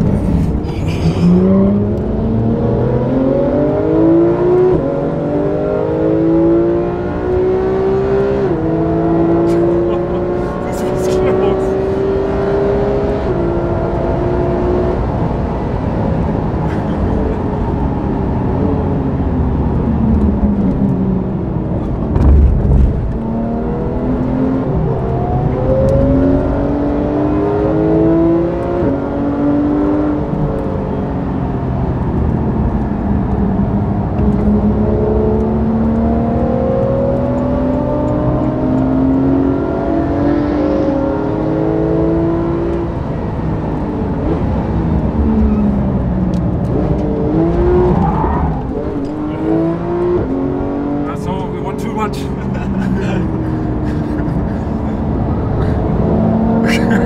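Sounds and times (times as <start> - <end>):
car engine revving through gears: 0.0 - 57.0
low thump: 22.0 - 23.2.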